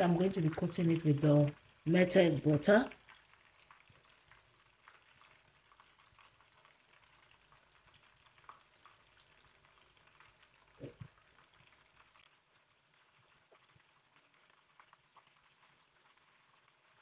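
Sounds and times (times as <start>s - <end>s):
fish frying in hot oil: 0.0s - 17.0s.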